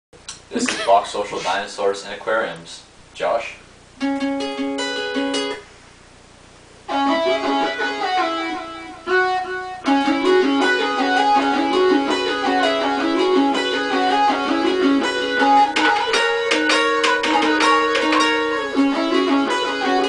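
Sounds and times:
guitar and synthesizer tune: 4.0s - 5.7s, 6.8s - 20.0s.

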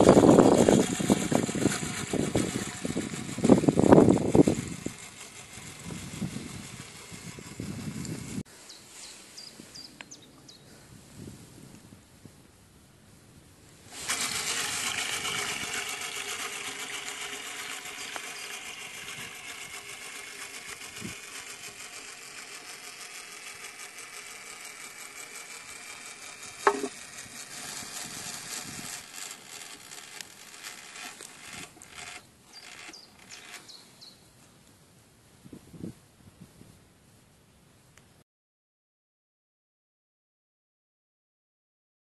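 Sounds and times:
clockwork toy motor whirring: 0.0s - 8.4s, 13.9s - 33.8s
sharp knocks: 26.6s - 26.9s.

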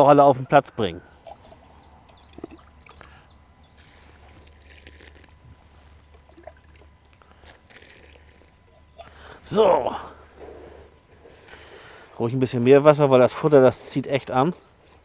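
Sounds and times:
wet bait sloshing and squelching: 3.8s - 5.4s, 6.0s - 8.7s.

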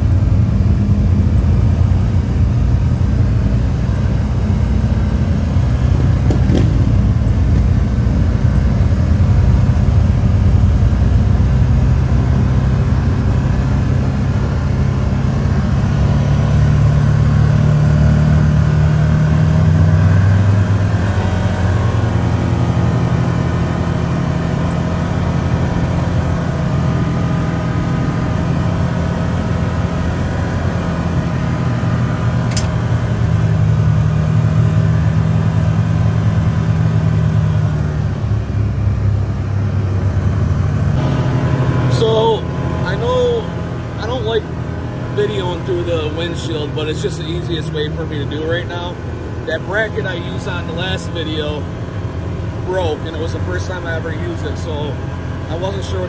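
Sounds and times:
vehicle engine running: 0.0s - 56.0s
sharp click: 32.5s - 32.8s.

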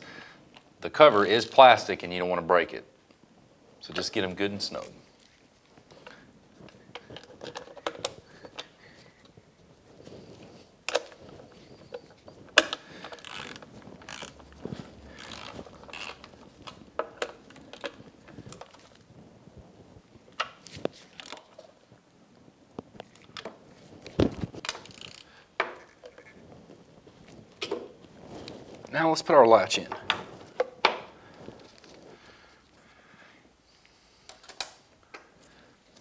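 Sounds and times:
hand ratchet clicking: 12.6s - 17.2s, 24.7s - 25.3s.

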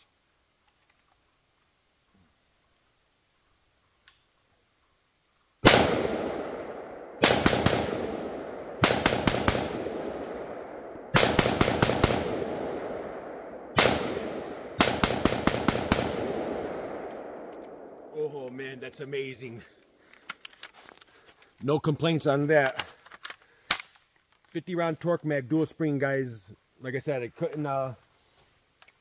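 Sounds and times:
rifle shots with echo: 5.6s - 18.1s.

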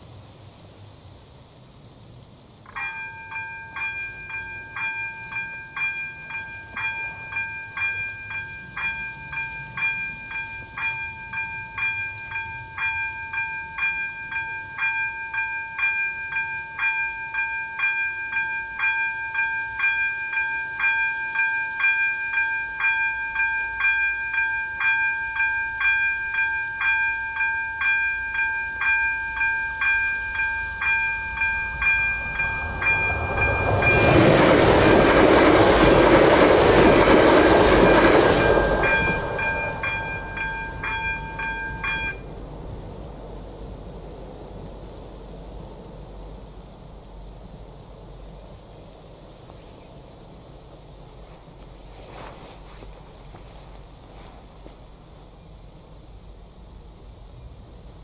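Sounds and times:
level crossing warning bell: 2.7s - 42.4s.

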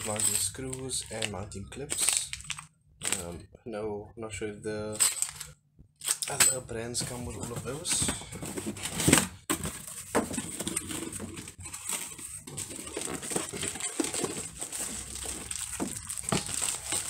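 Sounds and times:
plastic bag crinkling: 0.0s - 3.4s, 9.8s - 17.0s
cardboard rustling: 6.9s - 17.0s.

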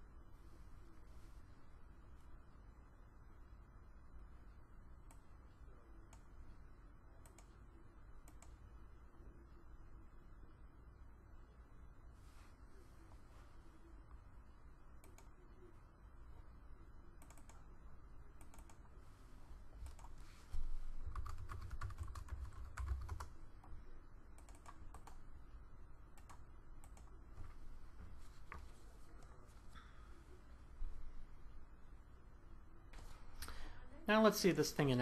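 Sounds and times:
typing on keyboard: 17.2s - 17.6s, 19.8s - 20.2s, 21.1s - 23.3s, 24.4s - 25.2s.

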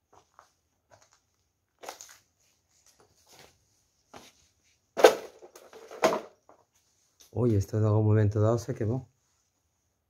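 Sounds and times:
footsteps crunching on debris: 0.0s - 5.6s.

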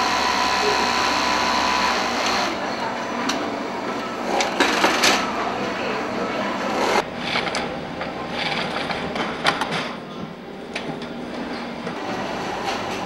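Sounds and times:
industrial sewing machine whirring: 0.0s - 2.6s
sewing room running noise: 0.0s - 13.0s.

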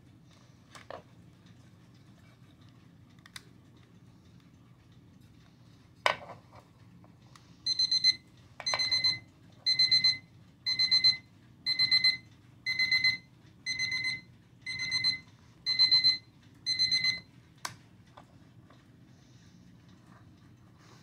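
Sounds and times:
alarm clock beeping: 7.6s - 17.3s.

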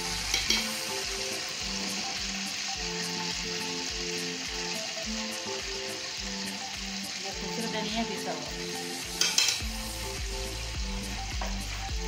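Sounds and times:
background music: 0.0s - 12.0s
paste sizzling and bubbling: 0.0s - 12.0s
spoon clink: 9.2s - 9.6s.

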